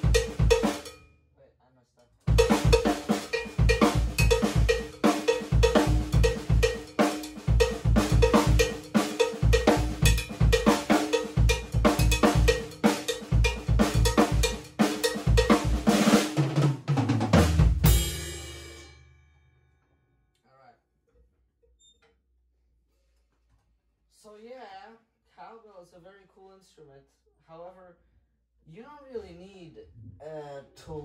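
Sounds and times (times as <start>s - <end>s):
cymbal crash ringing: 0.0s - 1.0s, 2.3s - 15.9s, 17.9s - 19.4s
drum kit groove: 0.0s - 1.0s, 2.2s - 18.9s
ringing cowbell strikes: 0.0s - 1.1s, 2.3s - 15.8s.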